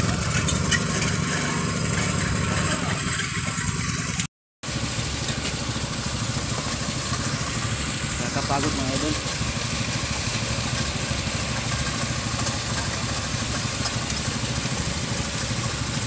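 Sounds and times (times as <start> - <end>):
diesel engine running: 0.0 - 16.0
mixer drum turning: 5.0 - 16.0.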